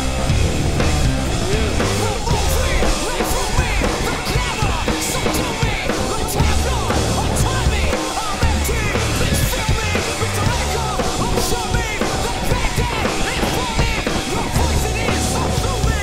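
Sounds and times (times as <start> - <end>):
drum beat: 0.0 - 16.0
heavy bass: 0.0 - 16.0.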